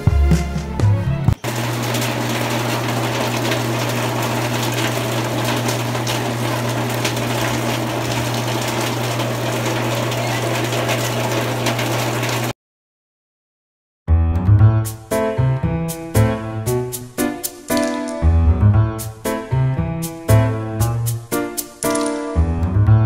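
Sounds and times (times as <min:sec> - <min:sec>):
rain on metal roof: 0:01.5 - 0:12.5.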